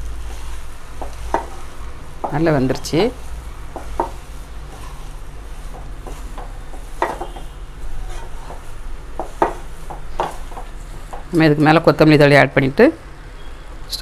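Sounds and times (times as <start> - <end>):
wooden spatula scraping a pan: 0.0 - 11.4
spatula knocking against pan: 1.0 - 1.6, 3.7 - 4.9, 5.6 - 11.4.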